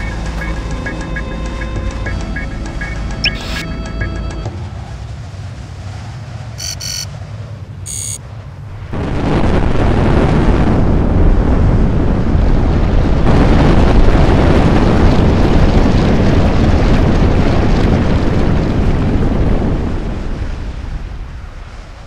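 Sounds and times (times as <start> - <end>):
deep rumble of erupting ground: 8.5 - 22.0.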